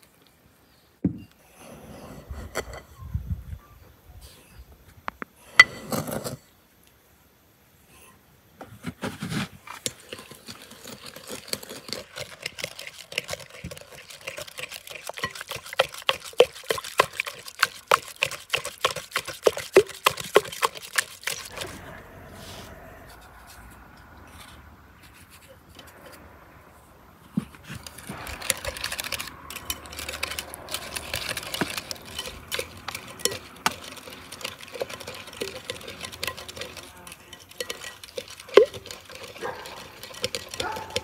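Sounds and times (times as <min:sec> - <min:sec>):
liquid sloshing: 0:09.9 - 0:21.9, 0:27.3 - 0:41.0
whisk clinking against glass bowl: 0:12.2 - 0:21.6, 0:28.4 - 0:41.0.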